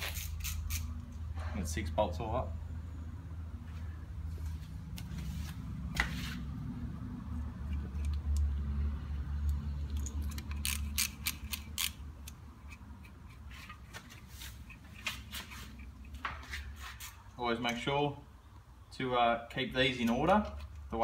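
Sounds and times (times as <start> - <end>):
socket ratchet clicking: 0.0 - 1.0, 9.4 - 13.5.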